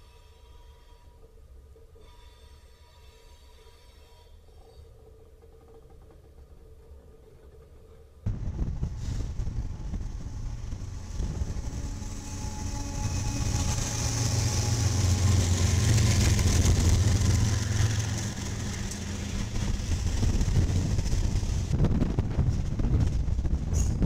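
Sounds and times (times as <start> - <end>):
locomotive engine drone: 4.6 - 24.0
wheel and rail hiss: 8.8 - 21.7.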